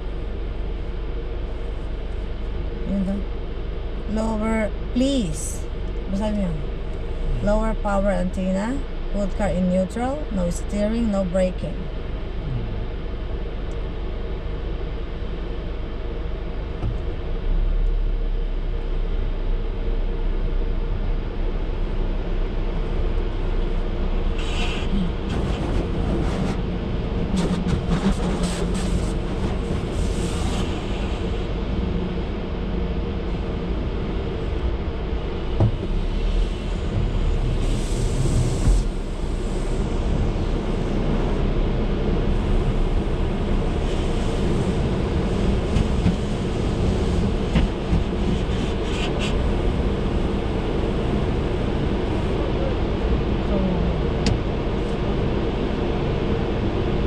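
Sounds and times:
low idling rumble: 0:00.0 - 0:57.0.

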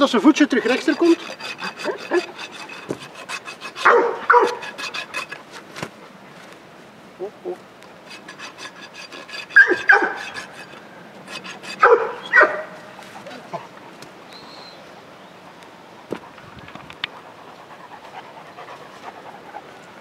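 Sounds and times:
trimming tools scraping hoof: 0:00.0 - 0:05.8, 0:07.8 - 0:13.4
dog barking: 0:03.8 - 0:04.7, 0:09.6 - 0:10.2, 0:11.8 - 0:12.8.

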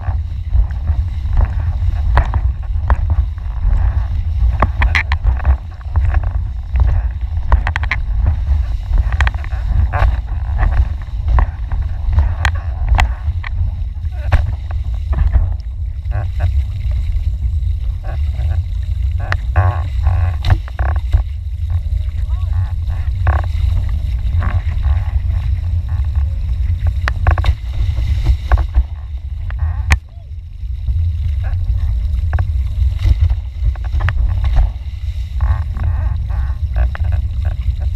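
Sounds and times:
water spray ticks and splashes: 0:00.0 - 0:30.1, 0:30.7 - 0:37.9
wind buffeting microphone: 0:00.0 - 0:37.9.

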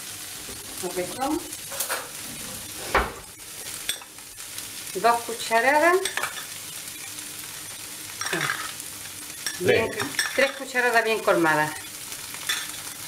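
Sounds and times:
vegetables sizzling in a pan: 0:00.0 - 0:13.0
spoon stirring and scraping: 0:01.6 - 0:04.6, 0:06.0 - 0:10.8, 0:11.7 - 0:13.0.

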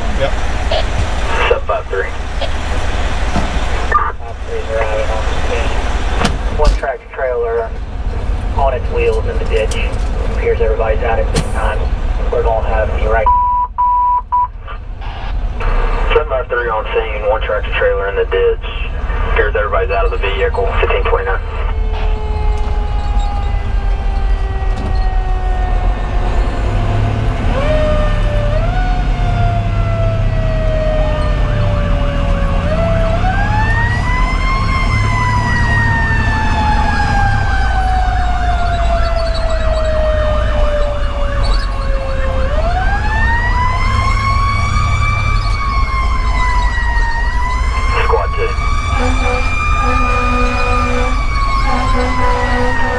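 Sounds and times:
diesel engine droning: 0:00.0 - 0:52.9
mechanical siren wailing: 0:21.3 - 0:26.7, 0:27.4 - 0:52.9.

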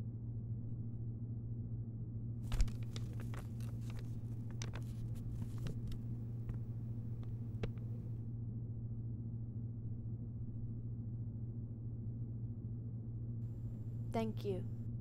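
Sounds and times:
steady low hum: 0:00.0 - 0:15.0
paper rustling: 0:02.5 - 0:08.2.

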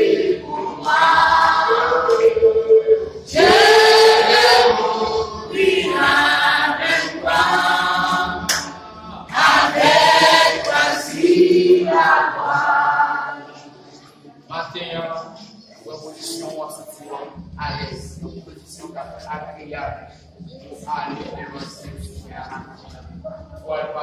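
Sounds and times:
choir singing a hymn: 0:00.0 - 0:14.0.

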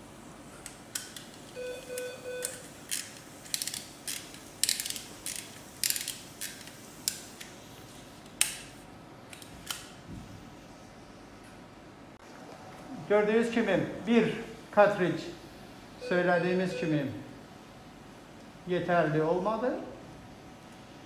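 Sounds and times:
stapler ratcheting clicks: 0:02.4 - 0:07.2.

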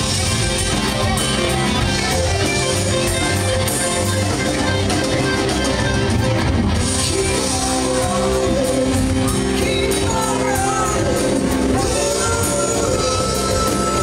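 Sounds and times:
drum kit: 0:00.0 - 0:14.0
loud electric guitars: 0:00.0 - 0:14.0
man singing: 0:06.8 - 0:14.0.

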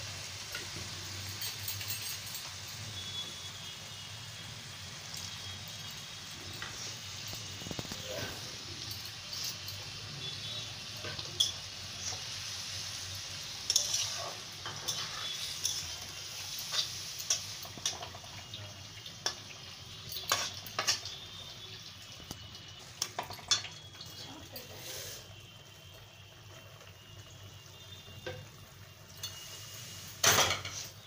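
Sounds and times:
curry sizzling in a pan: 0:00.0 - 0:31.0
spatula clinking and scraping pan: 0:00.3 - 0:03.5, 0:05.0 - 0:21.6, 0:22.9 - 0:25.2, 0:29.1 - 0:31.0.

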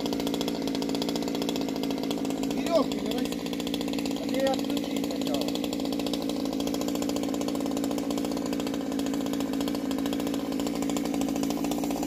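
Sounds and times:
chainsaw engine running steadily: 0:00.0 - 0:12.0.

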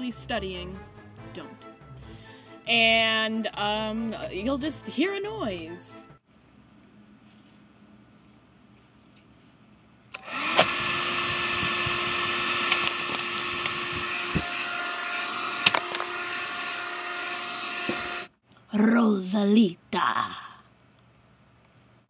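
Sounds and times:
vacuum cleaner motor whining: 0:10.2 - 0:18.3.

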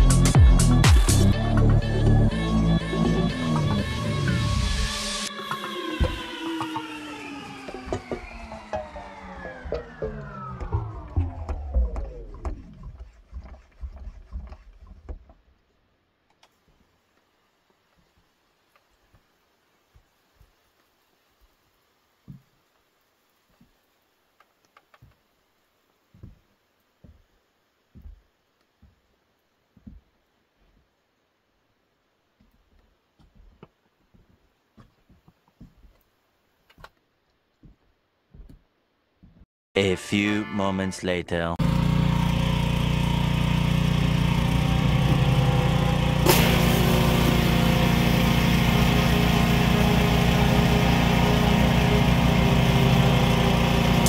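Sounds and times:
boots on wet wooden boards: 0:07.7 - 0:15.6, 0:17.7 - 0:31.0, 0:32.3 - 0:39.4
pressure washer engine running: 0:41.6 - 0:54.0
high-pressure water spraying on wood: 0:44.3 - 0:54.0.

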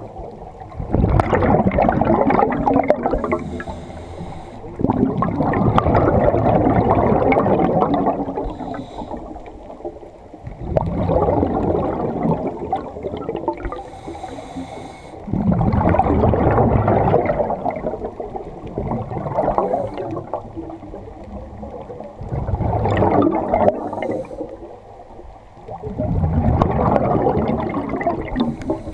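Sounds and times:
exhaled bubbles rushing: 0:00.0 - 0:14.4, 0:15.3 - 0:28.9
high hiss of inhalation: 0:03.2 - 0:04.7, 0:08.4 - 0:09.5, 0:13.7 - 0:15.3, 0:23.8 - 0:24.6.

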